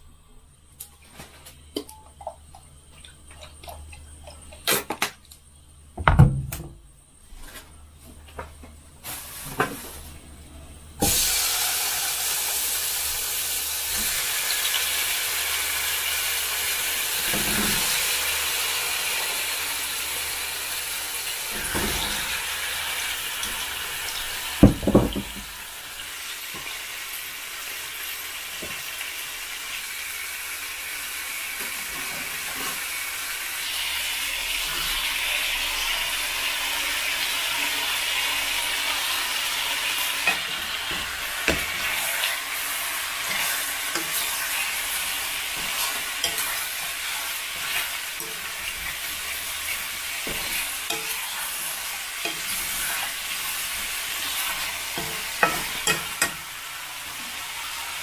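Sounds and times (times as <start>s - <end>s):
tap water running: 11.0s - 58.0s
utensils and cookware clinking: 40.2s - 42.2s, 43.2s - 56.6s.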